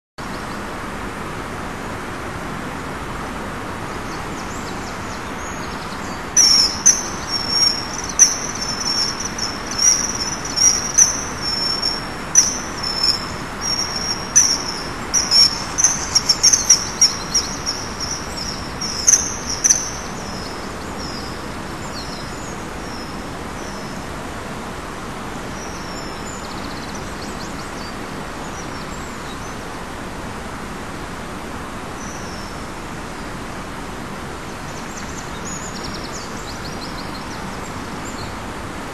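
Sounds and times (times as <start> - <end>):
steady background hiss: 0.2 - 38.9
kingfisher piping calls: 5.6 - 22.4.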